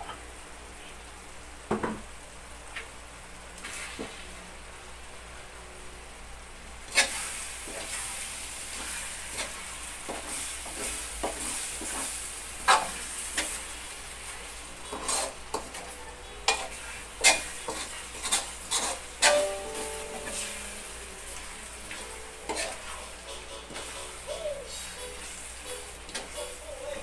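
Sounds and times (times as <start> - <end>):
frying sizzle: 0.0 - 27.0
metal spatula scraping wok: 14.9 - 15.9, 16.5 - 24.1.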